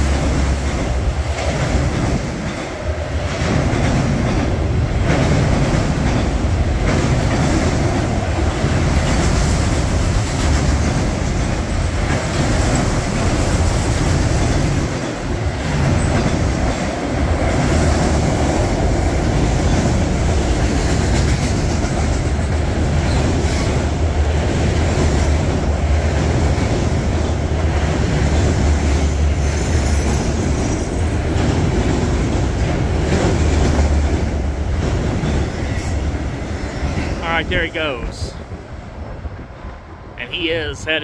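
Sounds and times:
wheels clacking over rail joints: 0.0 - 37.2
freight train rumbling past: 0.0 - 41.0.

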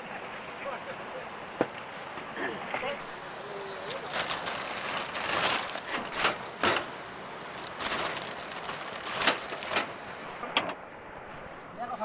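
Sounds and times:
mountain stream rushing: 0.0 - 12.0
plastic sacks rustling: 3.8 - 10.4.

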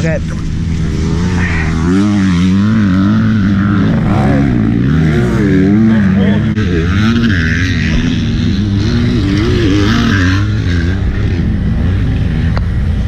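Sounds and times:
utility vehicle engine rumbling: 0.0 - 13.0.

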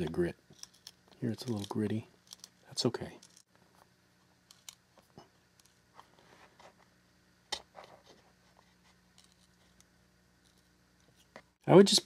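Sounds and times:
gritty scraping and small clicks: 0.5 - 3.9, 4.5 - 6.1, 8.6 - 11.6.

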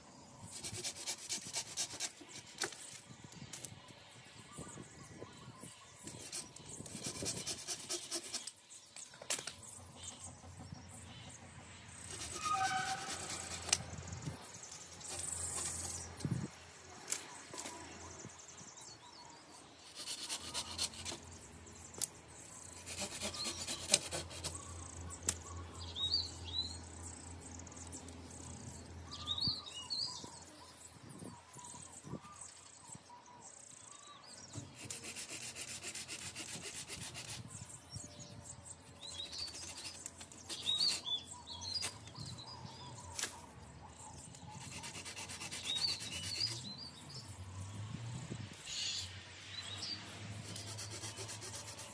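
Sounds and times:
small birds chirping: 0.2 - 51.9
hand saw cutting branches: 0.5 - 2.8, 6.1 - 8.6, 12.1 - 13.9, 19.9 - 21.2, 22.8 - 24.6, 34.6 - 37.5, 39.0 - 42.2, 44.6 - 46.7, 50.4 - 51.9.

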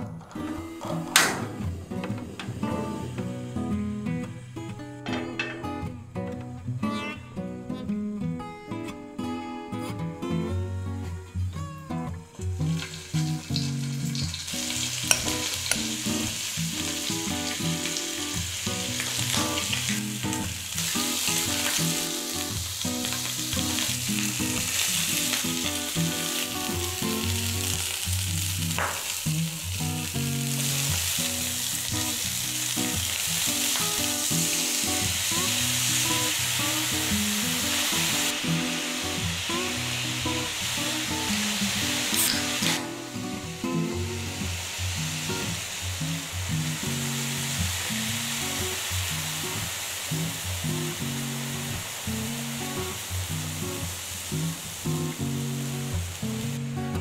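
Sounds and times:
chicken sizzling in oil: 12.6 - 56.7.

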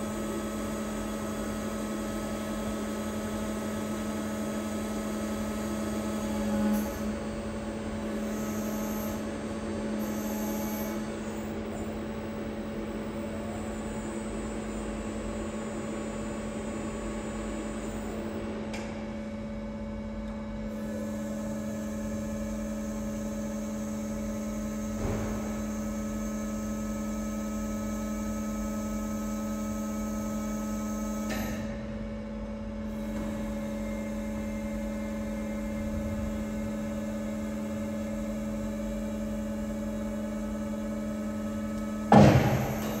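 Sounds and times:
hydraulic power unit humming: 0.0 - 43.0
metal arm knocks: 42.1 - 43.0.

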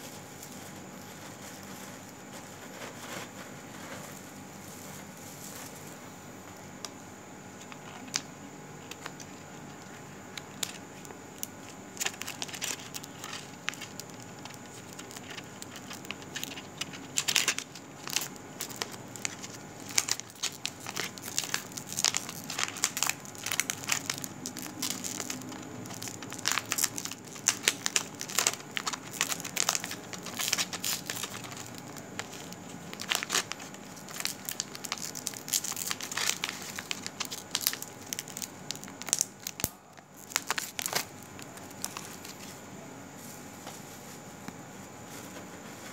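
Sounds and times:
crackling and crinkling clicks: 7.6 - 42.6.

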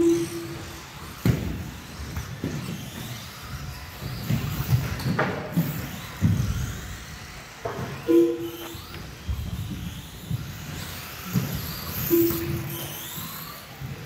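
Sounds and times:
electric rc trucks racing: 0.0 - 14.0
short steady tone: 8.1 - 8.7, 12.1 - 12.7.

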